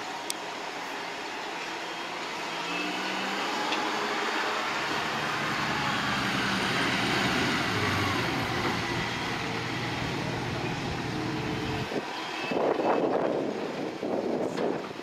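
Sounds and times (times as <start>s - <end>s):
large engine humming: 1.5s - 13.8s.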